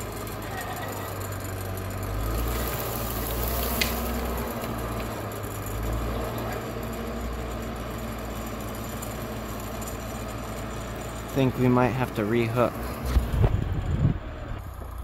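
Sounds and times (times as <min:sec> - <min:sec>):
diesel engine droning: 0:00.0 - 0:15.0
crackling hiss: 0:02.5 - 0:05.1.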